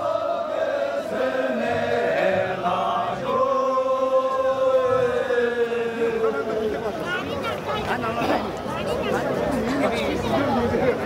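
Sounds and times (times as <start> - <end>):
men singing in long chant notes: 0.0 - 6.5.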